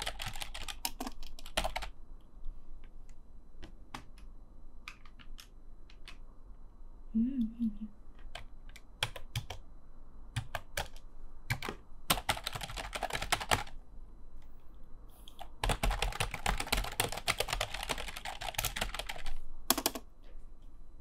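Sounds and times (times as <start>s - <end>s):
typing on computer keyboard: 0.0s - 2.0s, 3.9s - 6.2s, 8.2s - 9.6s, 10.3s - 13.8s, 15.3s - 20.1s.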